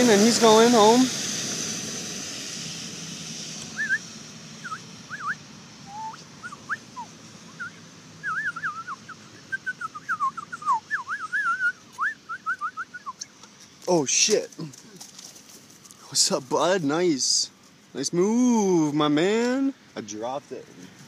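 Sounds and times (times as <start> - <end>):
thin sliding whistle-like chirps: 3.7 - 13.3.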